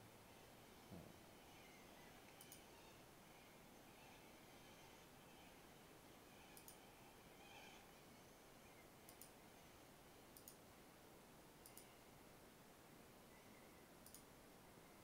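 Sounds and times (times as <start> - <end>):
low steady hiss: 0.0 - 15.0
computer mouse clicks: 2.3 - 2.7, 6.5 - 6.8, 9.0 - 9.4, 10.3 - 10.6, 11.6 - 11.9, 14.0 - 14.3.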